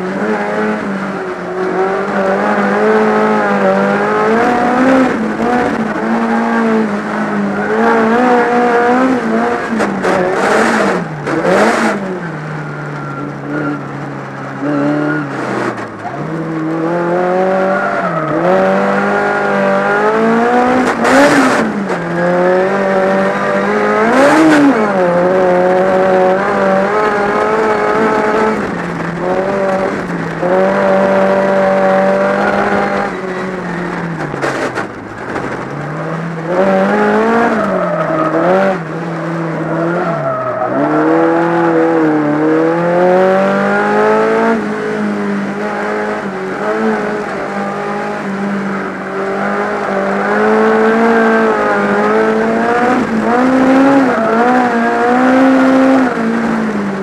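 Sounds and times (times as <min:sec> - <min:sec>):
race car engine revving: 0:00.0 - 0:57.0.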